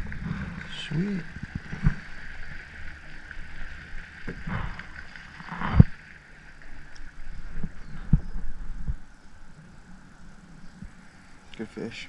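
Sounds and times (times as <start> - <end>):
steady high drone: 0.0 - 7.3.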